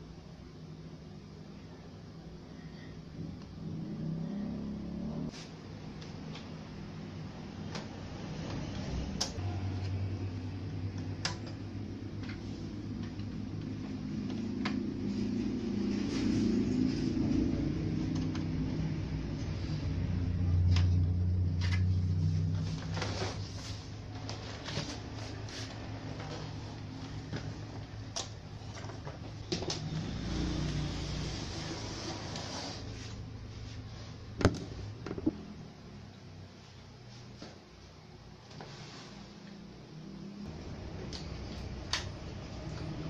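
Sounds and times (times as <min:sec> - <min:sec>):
low steady hum: 0:00.0 - 0:43.0
steady background noise: 0:00.0 - 0:43.0.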